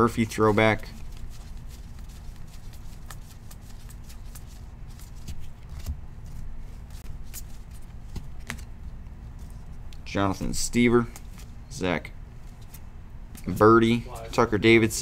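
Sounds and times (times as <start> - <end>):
cards being flicked: 0.9 - 8.8.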